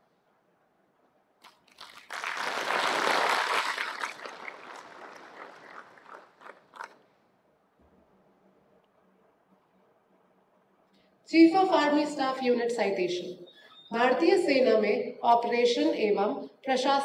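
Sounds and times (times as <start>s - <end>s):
audience applauding: 1.7s - 7.0s.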